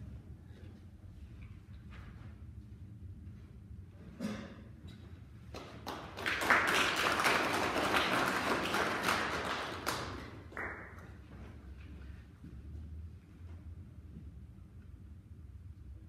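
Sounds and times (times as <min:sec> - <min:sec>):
audience applauding: 0:05.6 - 0:11.2.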